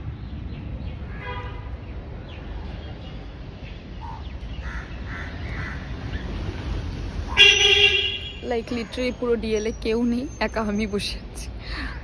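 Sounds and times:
crows cawing: 4.0s - 6.0s
loud honk: 7.4s - 8.4s.

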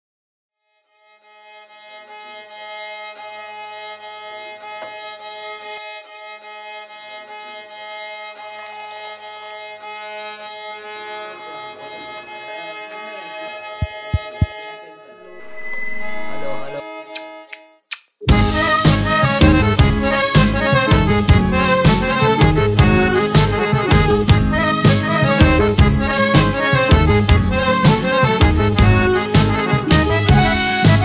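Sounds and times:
sustained instrumental drone: 9.8s - 17.0s
sharp low thumps: 13.8s - 14.7s
low bass drone: 15.2s - 16.8s.

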